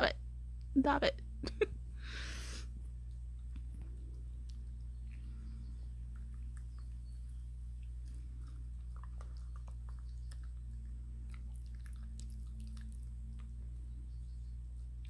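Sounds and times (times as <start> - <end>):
low hum: 0.0 - 15.0
dog chewing and lapping food: 6.0 - 13.7.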